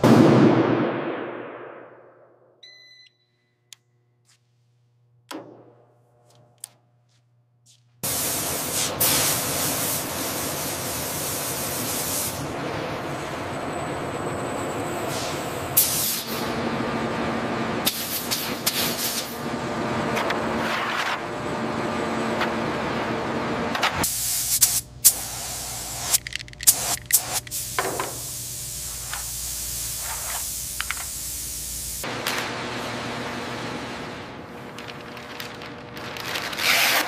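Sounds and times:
short beep: 0:02.6 - 0:03.7
air-driven spraying hiss: 0:24.0 - 0:32.0.

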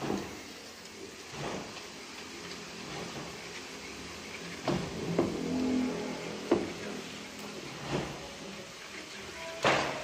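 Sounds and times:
noodles bubbling in wok: 0:00.0 - 0:10.0.

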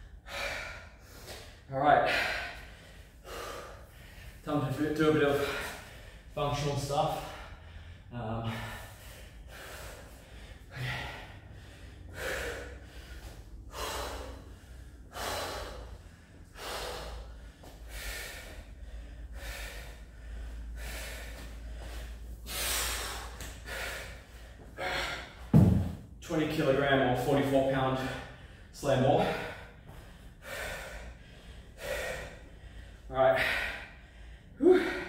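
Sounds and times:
man breathing hard: 0:00.0 - 0:35.0.

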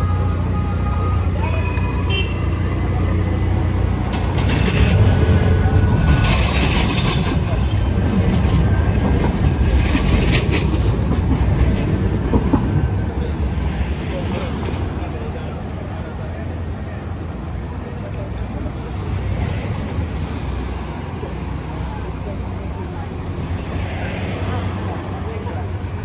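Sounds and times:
tram rumbling on rails: 0:00.0 - 0:26.0.

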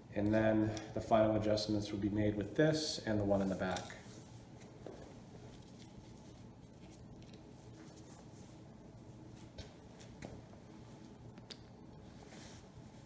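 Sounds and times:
low room hum: 0:00.0 - 0:13.0
gloved hands and screwdriver handling: 0:03.2 - 0:08.3.

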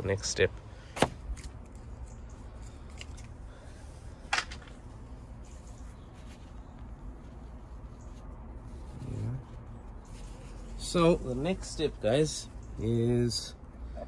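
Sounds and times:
low outdoor rumble: 0:00.0 - 0:14.0
wipe rubbing on glass: 0:05.4 - 0:11.7.

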